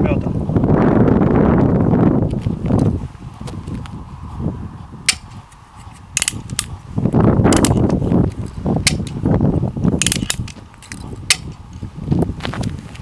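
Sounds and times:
handling noise: 0:05.0 - 0:09.3, 0:10.0 - 0:13.0
toy gun plastic snaps and clicks: 0:06.2 - 0:06.7.

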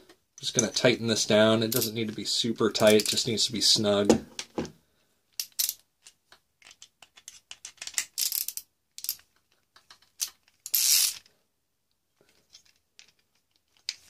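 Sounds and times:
metal washers clinking: 0:01.6 - 0:02.2, 0:02.8 - 0:03.3.

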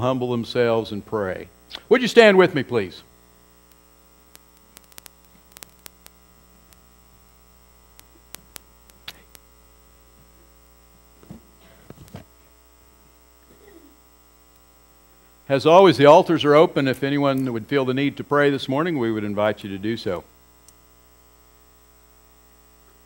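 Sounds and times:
electrical mains hum: 0:00.0 - 0:23.0
faint clicks and knocks: 0:11.2 - 0:12.3.

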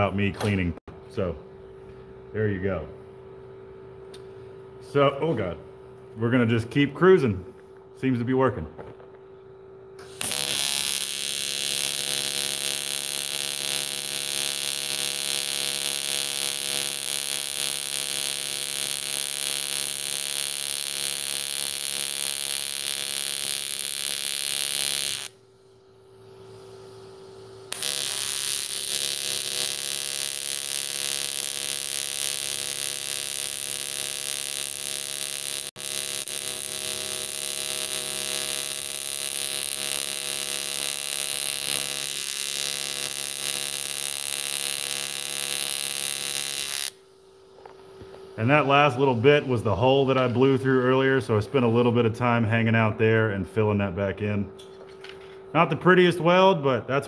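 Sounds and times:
welding arc buzzing: 0:10.0 - 0:50.5.

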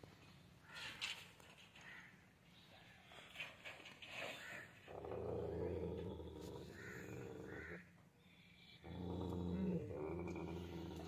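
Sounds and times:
dog growling low: 0:04.9 - 0:07.8, 0:08.8 - 0:11.0.

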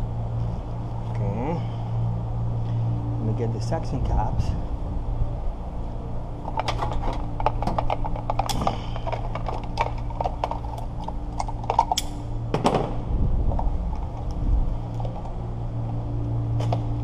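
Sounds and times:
steady low hum: 0:00.0 - 0:17.0
clicks and knocks of tools: 0:06.5 - 0:12.2.

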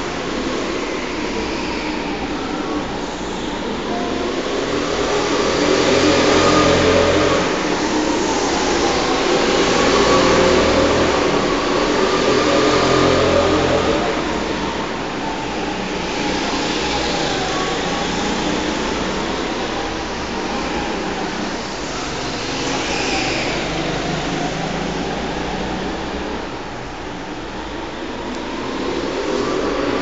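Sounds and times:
go-kart engines revving: 0:00.0 - 0:30.0.

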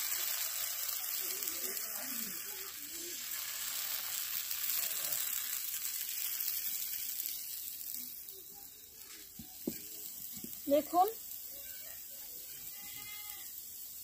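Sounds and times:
batter sizzling in hot oil: 0:00.0 - 0:14.0.

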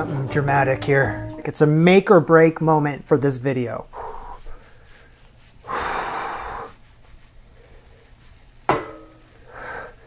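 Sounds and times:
frying pan metallic clank: 0:08.7 - 0:09.3.

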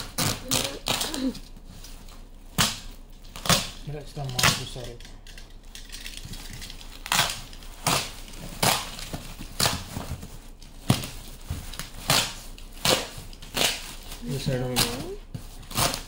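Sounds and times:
packaging being cut and torn: 0:00.0 - 0:01.5, 0:06.0 - 0:10.2, 0:10.8 - 0:16.0.

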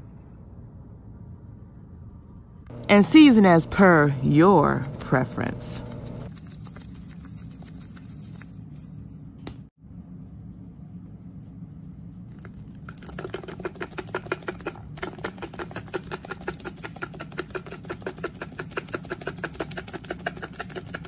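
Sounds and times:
steady low hum: 0:00.0 - 0:15.0
seasoning shaker rattling: 0:04.3 - 0:08.9, 0:11.5 - 0:21.0.

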